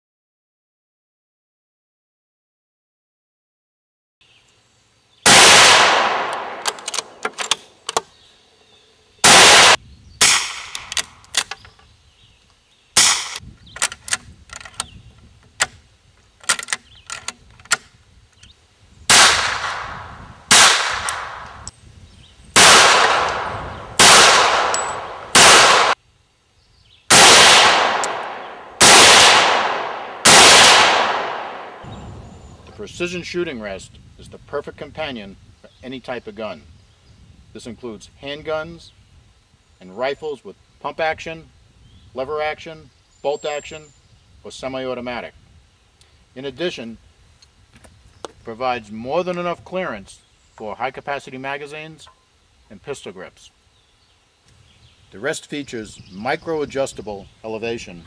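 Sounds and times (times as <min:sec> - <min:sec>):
gunshots with echo: 0:05.3 - 0:07.2, 0:09.2 - 0:10.7, 0:22.6 - 0:26.0, 0:27.1 - 0:32.8.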